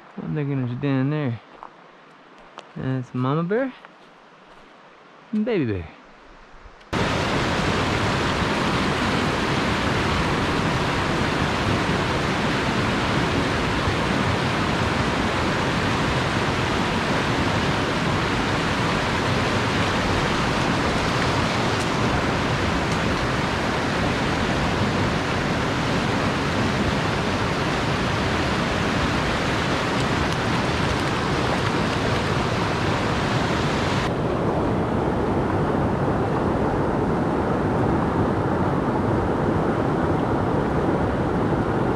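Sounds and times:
stream rushing over rocks: 7.0s - 34.4s.

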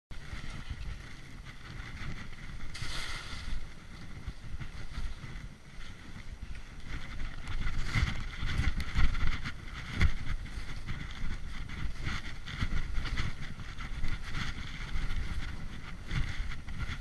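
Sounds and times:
wind buffeting microphone: 0.1s - 17.0s
skis hissing and scraping over snow: 2.3s - 6.4s.

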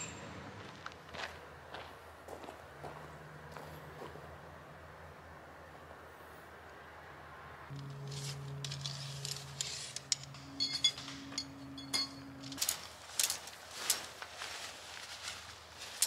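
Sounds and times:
low steady hum: 7.7s - 15.5s
light metallic clinks: 8.7s - 14.0s
nylon fabric rustling: 12.5s - 16.0s.

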